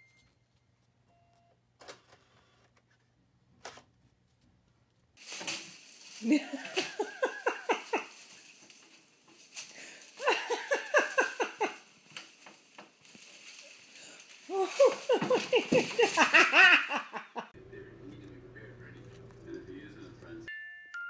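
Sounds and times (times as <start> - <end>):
person laughing: 6.2 - 8.2, 10.2 - 11.9, 14.5 - 17.6.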